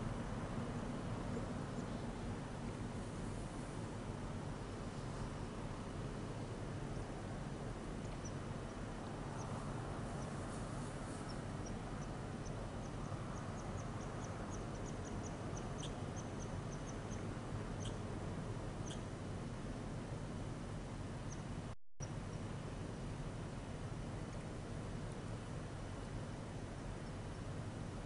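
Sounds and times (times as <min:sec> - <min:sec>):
low background hiss: 0:00.0 - 0:28.0
small bird chirping: 0:13.6 - 0:17.2, 0:17.8 - 0:18.0, 0:18.8 - 0:19.0.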